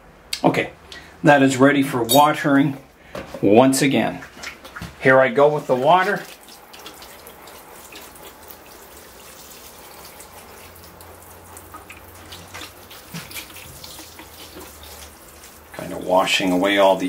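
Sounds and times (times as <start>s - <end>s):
water splashing into tray: 4.0s - 17.0s
water shower falling on soil: 5.7s - 17.0s.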